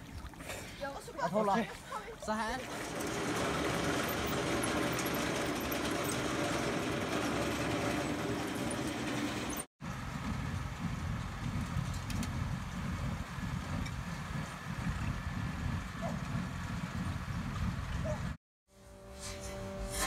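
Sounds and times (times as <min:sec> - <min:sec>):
tractor engine running: 0:02.6 - 0:18.3
low rough engine rumble: 0:02.6 - 0:18.4.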